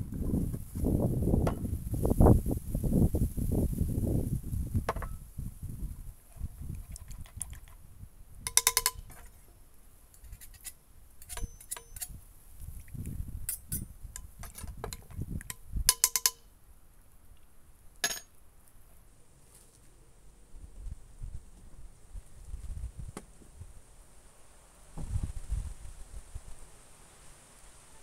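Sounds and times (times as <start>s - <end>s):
metallic clinks on pot: 8.5s - 9.3s, 10.2s - 12.2s, 13.5s - 16.5s, 18.0s - 18.3s
utensils stirring vegetables in pot: 10.2s - 12.2s.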